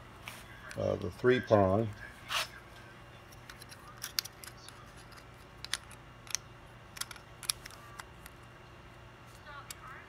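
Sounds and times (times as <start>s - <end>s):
faint low hum: 0.0s - 10.0s
metal connector clicking together: 3.5s - 6.4s, 7.0s - 8.4s.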